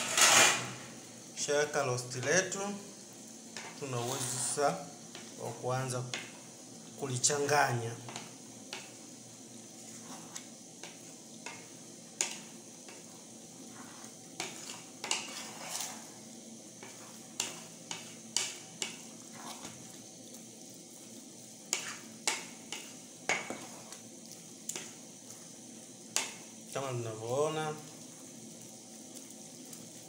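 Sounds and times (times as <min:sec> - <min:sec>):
spoon scraping metal pot: 0:00.0 - 0:00.8, 0:03.9 - 0:04.6, 0:13.7 - 0:16.1
faint hiss: 0:00.0 - 0:30.0.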